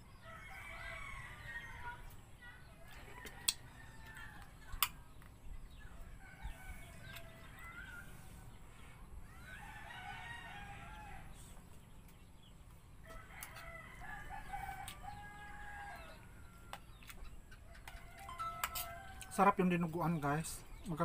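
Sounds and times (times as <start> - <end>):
rooster crowing: 0.2 - 2.0, 9.3 - 11.5, 13.1 - 16.8, 17.8 - 19.4.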